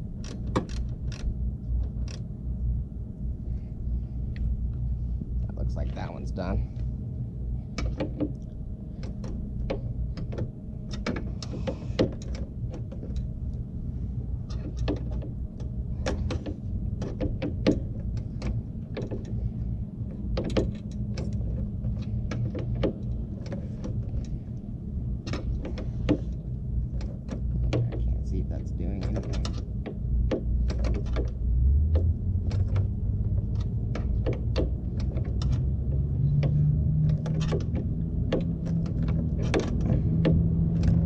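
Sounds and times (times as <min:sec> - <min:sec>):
steady low hum: 0:00.0 - 0:41.0.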